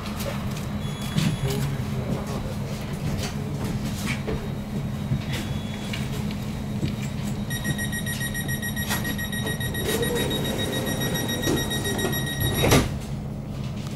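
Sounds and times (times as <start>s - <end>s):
high-pitched door warning beeping: 0.8s - 1.6s, 4.5s - 6.2s, 7.0s - 12.9s
train equipment hum: 1.8s - 13.9s
train doors shutting thump: 8.8s - 13.0s.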